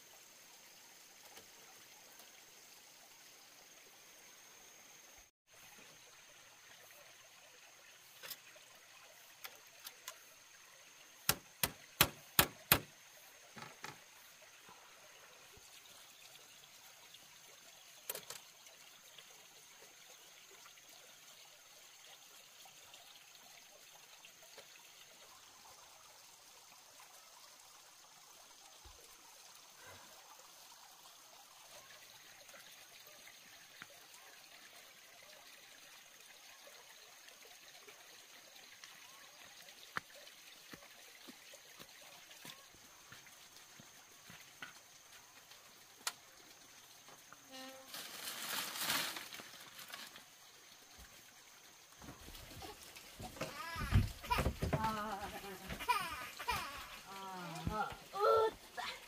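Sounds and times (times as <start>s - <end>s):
trickle of running water: 0.0s - 59.0s
sharp knocks: 11.3s - 12.9s.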